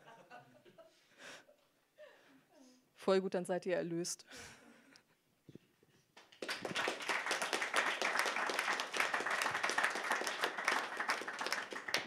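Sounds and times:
audience applauding: 6.2s - 12.0s.

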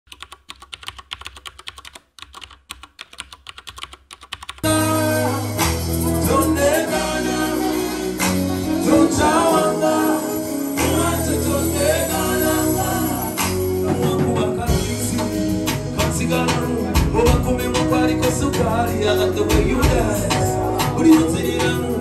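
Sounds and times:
bass guitar: 4.6s - 22.0s
drums: 4.6s - 22.0s
man singing: 4.6s - 22.0s.

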